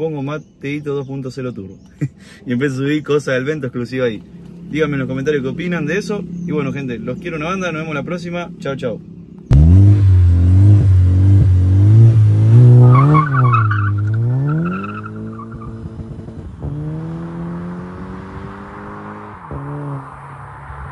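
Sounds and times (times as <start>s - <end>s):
car engine revving: 9.4s - 20.9s
tyre squeal: 12.7s - 15.8s.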